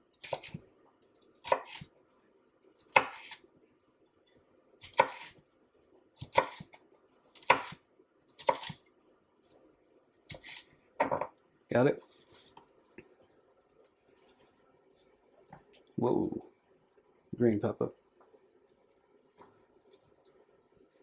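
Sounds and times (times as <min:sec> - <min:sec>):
knife slicing pepper: 0:00.2 - 0:00.6, 0:01.4 - 0:01.9, 0:02.8 - 0:03.4, 0:04.8 - 0:05.4, 0:06.2 - 0:08.8, 0:10.2 - 0:10.7.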